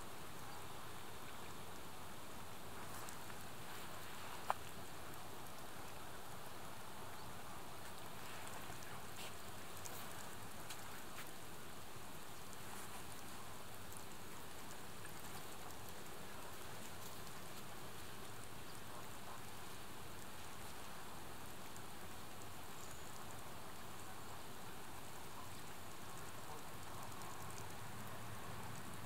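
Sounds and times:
steady hiss: 0.0s - 29.0s
faint ticks: 0.2s - 29.0s.

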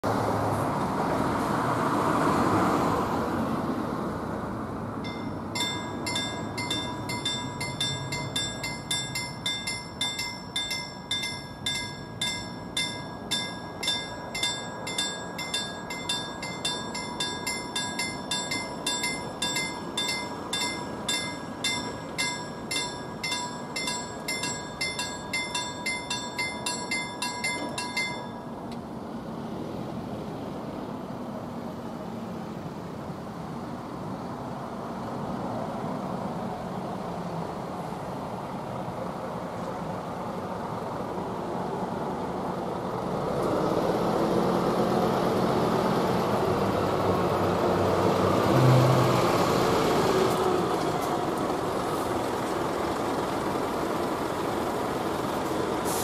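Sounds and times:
car passing: 0.0s - 38.6s
level crossing warning bell ringing: 5.0s - 28.8s.

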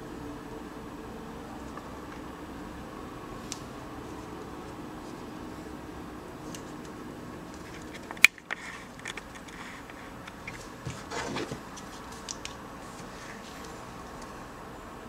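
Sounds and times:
faint steady hiss: 0.0s - 15.0s
handling rustle: 6.4s - 14.4s.

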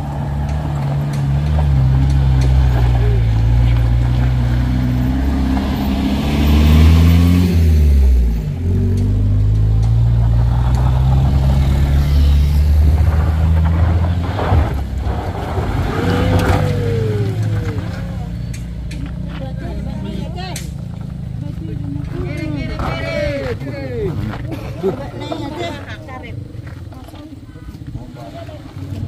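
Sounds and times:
minibus engine revving under load: 0.0s - 26.6s
car engine revving: 0.0s - 29.0s
wheels spinning in loose dirt: 0.0s - 29.0s.

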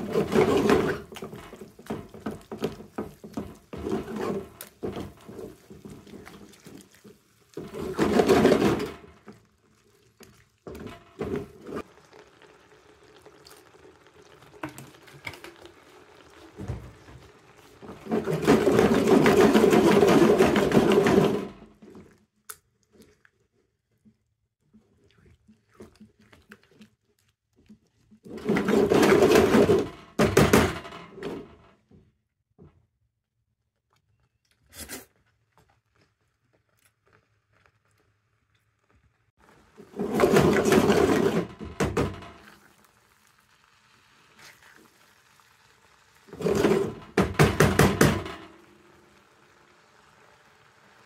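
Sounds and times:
spatula scraping paste in pan: 0.0s - 11.9s
paste simmering hiss: 42.5s - 46.4s, 48.6s - 51.0s.

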